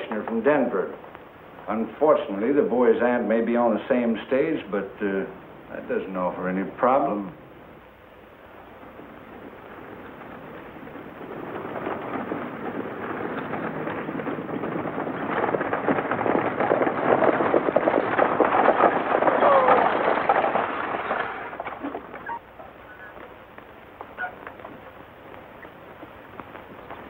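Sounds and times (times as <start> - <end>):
wheel rattle: 0.0 - 5.0, 8.4 - 27.0
galloping hoofbeats: 7.9 - 27.0.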